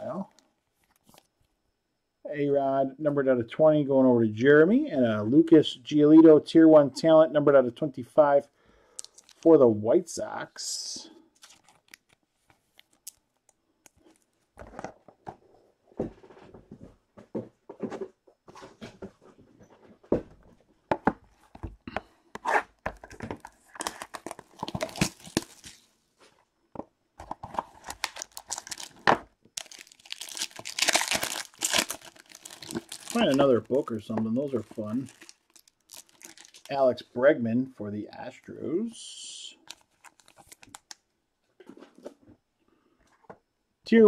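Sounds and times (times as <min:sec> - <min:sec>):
plastic wrapper tearing and crinkling: 0:09.0 - 0:09.5, 0:11.4 - 0:14.3, 0:23.0 - 0:25.9, 0:27.5 - 0:36.8, 0:39.6 - 0:41.0.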